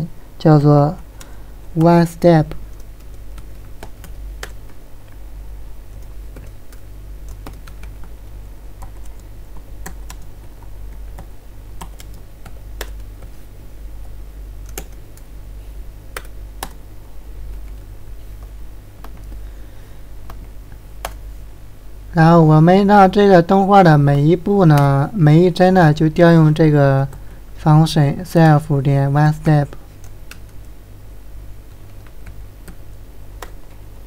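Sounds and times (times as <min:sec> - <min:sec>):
keyboard typing: 0:01.0 - 0:05.2, 0:05.9 - 0:15.3, 0:16.1 - 0:19.5, 0:20.2 - 0:21.3, 0:29.2 - 0:30.8, 0:31.7 - 0:33.9.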